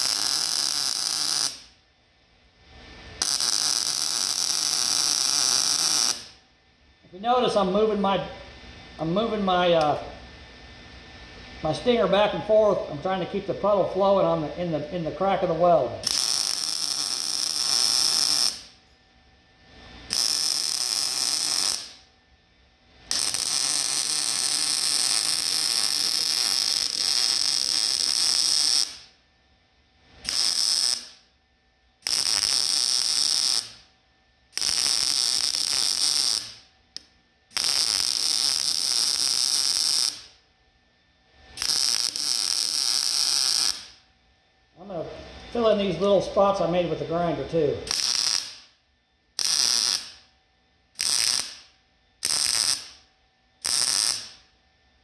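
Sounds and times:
welder arc crackling: 0:00.0 - 0:01.8, 0:02.7 - 0:06.4, 0:11.6 - 0:18.9, 0:19.8 - 0:22.1, 0:23.0 - 0:29.2, 0:30.1 - 0:31.3, 0:32.0 - 0:33.9, 0:34.5 - 0:40.4, 0:41.5 - 0:44.0, 0:44.9 - 0:48.8, 0:49.4 - 0:50.3, 0:50.9 - 0:54.5.

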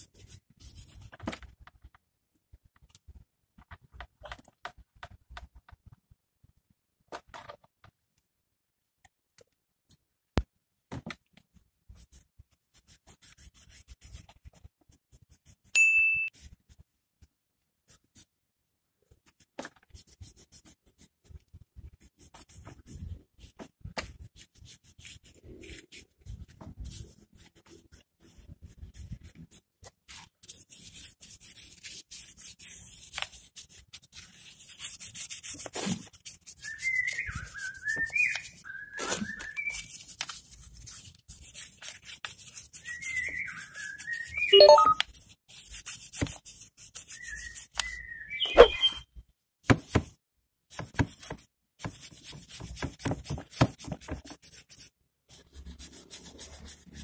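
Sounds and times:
short ringing ding: 0:15.8 - 0:16.3
wavering whistle: 0:47.4 - 0:49.0.

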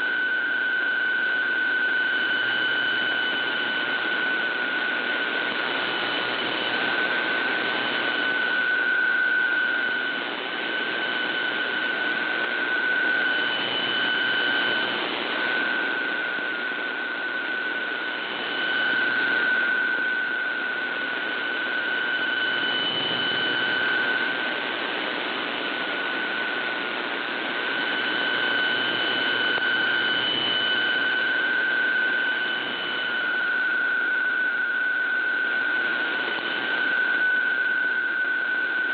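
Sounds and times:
faint higher tone: 0:00.0 - 0:24.6
steady mid-pitched radio tone: 0:00.0 - 0:38.9.

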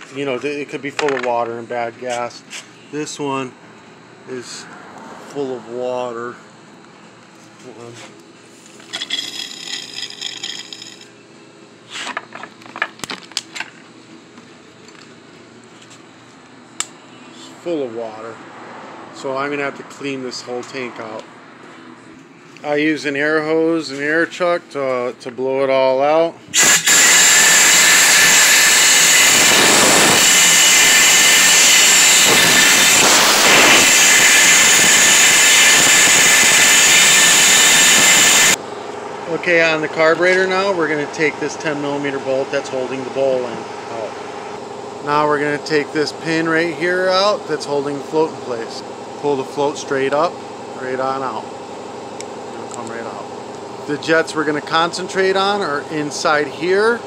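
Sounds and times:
compressed air hissing: 0:26.5 - 0:38.6.

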